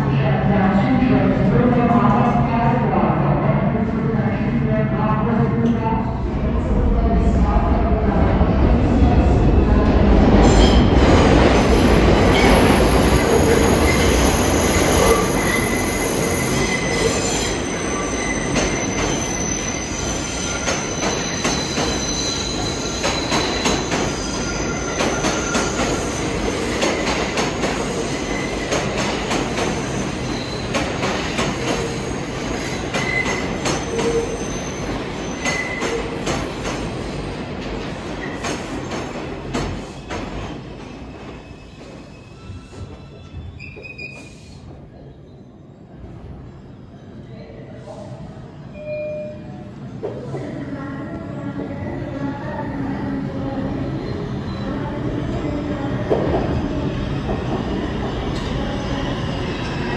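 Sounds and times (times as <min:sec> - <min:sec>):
train wheels squealing: 0:12.3 - 0:27.1, 0:29.7 - 0:30.8, 0:31.7 - 0:36.0, 0:40.9 - 0:44.6.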